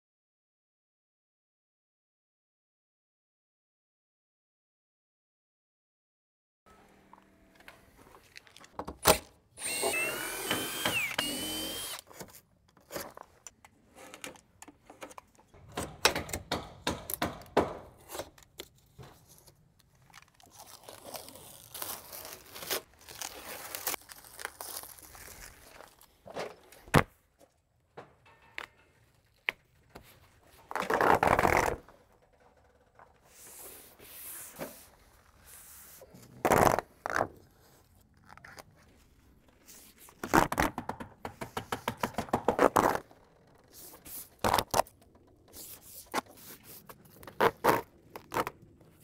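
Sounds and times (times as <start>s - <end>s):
power drill whining: 9.6s - 12.1s
tape tearing off roll: 20.2s - 26.1s, 30.7s - 31.9s, 42.5s - 48.6s.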